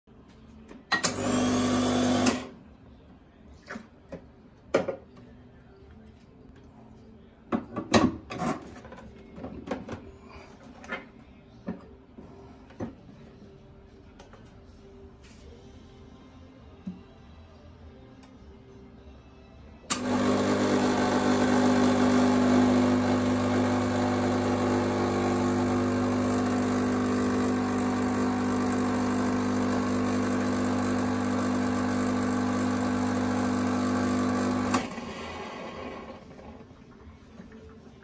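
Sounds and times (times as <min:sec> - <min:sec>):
espresso machine pump buzzing: 0:01.0 - 0:02.5, 0:19.9 - 0:36.2.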